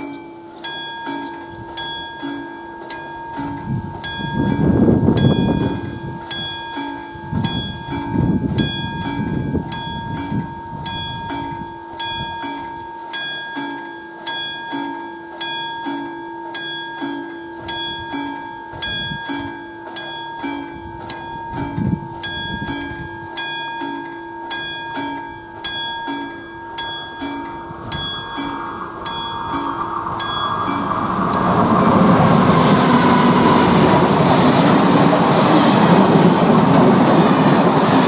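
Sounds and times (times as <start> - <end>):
level crossing bell ringing: 0.0 - 38.0
loud rushing noise: 27.6 - 38.0.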